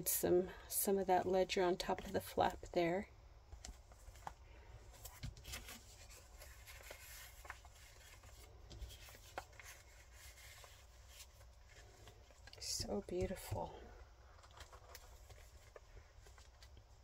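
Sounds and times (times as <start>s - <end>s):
low room hum: 0.0s - 17.0s
paper rustling and tapping: 5.0s - 13.6s.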